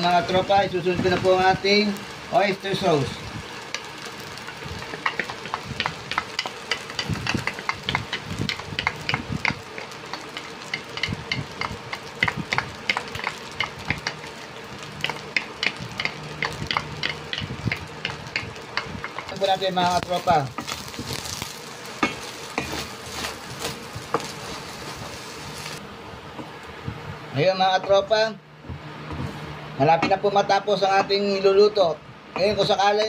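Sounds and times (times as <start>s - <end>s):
rice sizzling in a pan: 0.0s - 25.9s
utensil clicking against pan: 4.8s - 14.3s, 14.9s - 20.7s.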